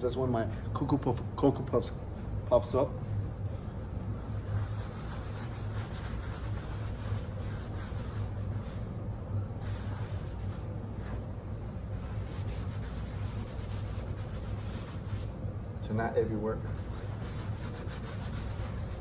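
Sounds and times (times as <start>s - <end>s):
steady low hum: 0.0s - 19.0s
sponge scrubbing plaster: 4.1s - 8.9s, 9.6s - 15.3s, 16.7s - 19.0s.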